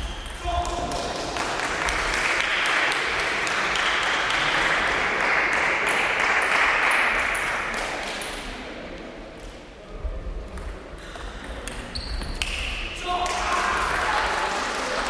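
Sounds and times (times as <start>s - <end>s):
spectators clapping: 0.4s - 8.4s, 12.4s - 15.0s.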